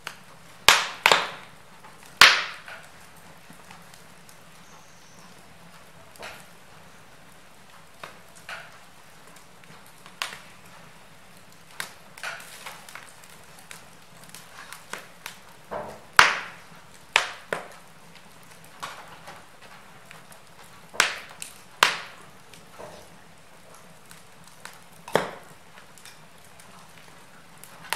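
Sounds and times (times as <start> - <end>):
logs crackling and popping: 0.0 - 27.9
fire hiss: 6.2 - 27.9.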